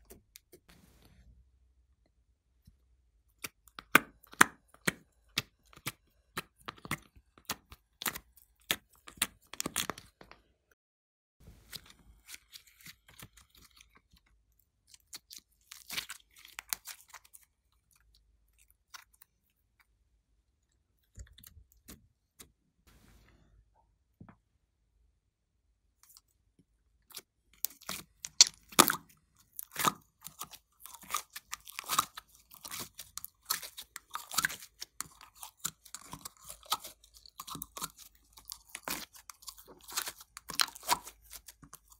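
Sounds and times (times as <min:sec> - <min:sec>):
slime squishing and crackling: 0:03.4 - 0:10.2, 0:11.7 - 0:19.3, 0:27.1 - 0:41.9
slime clicking and popping: 0:28.2 - 0:29.0.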